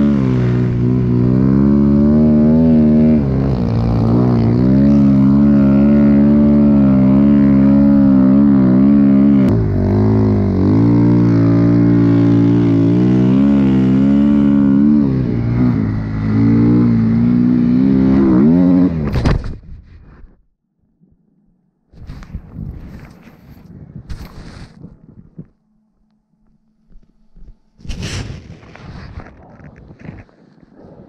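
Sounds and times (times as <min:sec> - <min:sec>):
snowbike engine revving: 0:00.0 - 0:19.2.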